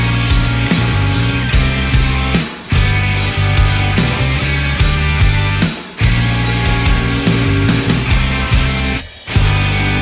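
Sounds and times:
instrumental hard rock music: 0:00.0 - 0:10.0.

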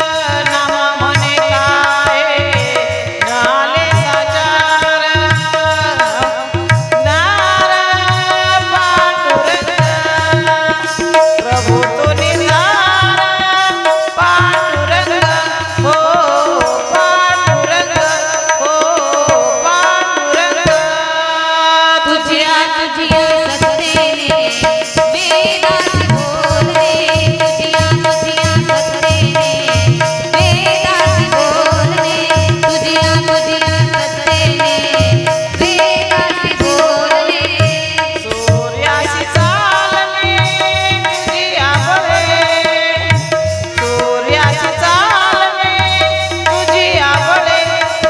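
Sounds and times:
women singing devotional song: 0:00.0 - 0:48.0
held drone note: 0:16.2 - 0:21.2.

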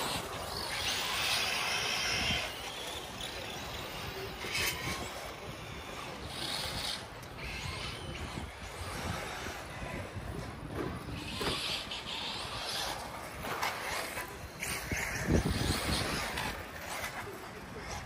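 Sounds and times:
toy cars tyres and drivetrain hiss: 0:00.0 - 0:18.0.

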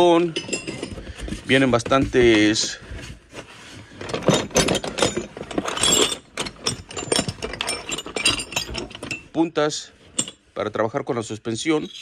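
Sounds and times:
metal tools clattering together: 0:00.0 - 0:02.8, 0:04.0 - 0:10.5.

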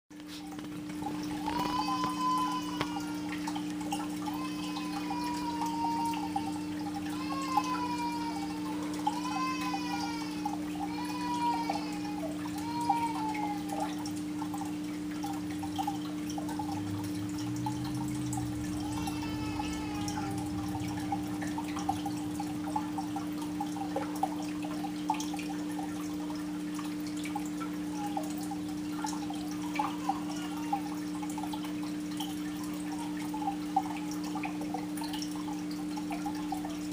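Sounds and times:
water trickling and dripping: 0:00.1 - 0:36.9
low electric hum: 0:00.2 - 0:36.9.

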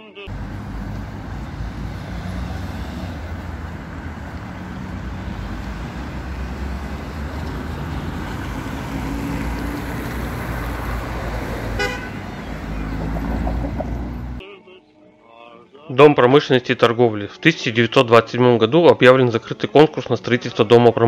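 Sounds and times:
cars passing: 0:00.3 - 0:14.4
car horn toot: 0:11.7 - 0:12.5.

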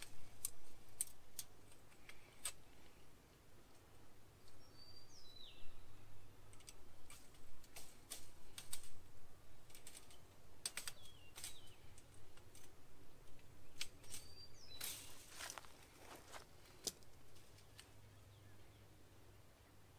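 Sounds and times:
metal fence clip clicking and scraping: 0:00.0 - 0:02.6, 0:06.5 - 0:09.0, 0:09.6 - 0:12.7, 0:13.3 - 0:15.1.

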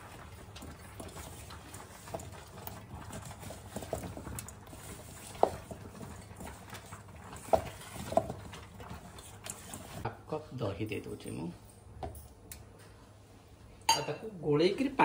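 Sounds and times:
spatula knocking and scraping pot: 0:00.0 - 0:10.0.

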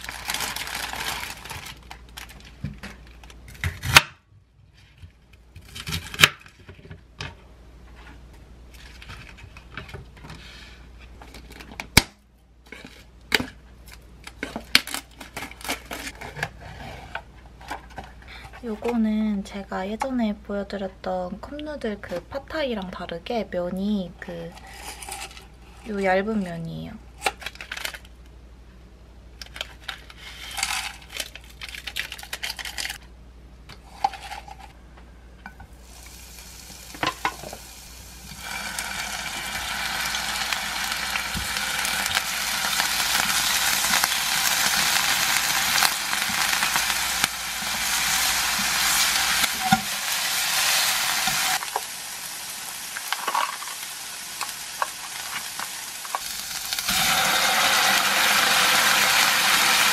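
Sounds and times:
packet rustling: 0:00.0 - 0:03.4, 0:27.3 - 0:28.1, 0:29.4 - 0:33.0
shrimp sizzling in a pan: 0:35.8 - 0:59.9.

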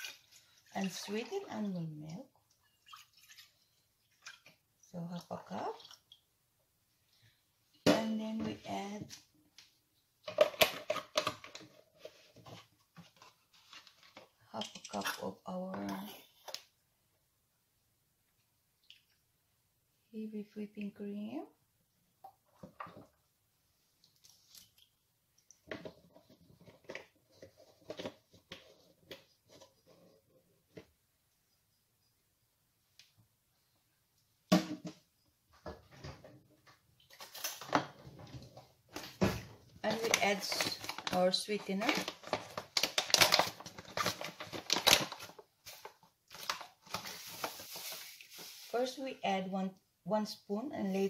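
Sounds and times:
plastic pouch crinkling: 0:39.8 - 0:48.8.

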